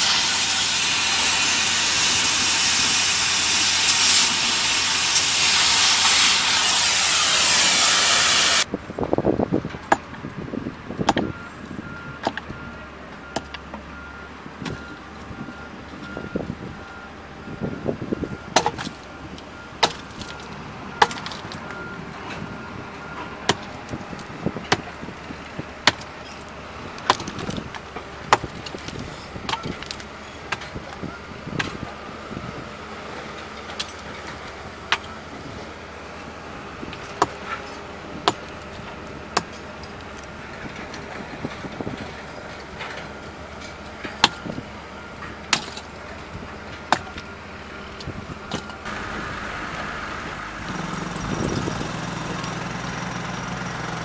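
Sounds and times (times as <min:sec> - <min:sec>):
sledgehammer striking rock: 0:18.6 - 0:19.0, 0:19.8 - 0:20.4, 0:21.0 - 0:21.4, 0:25.8 - 0:26.1, 0:28.3 - 0:30.0, 0:44.2 - 0:44.6, 0:45.5 - 0:45.9, 0:46.9 - 0:47.3.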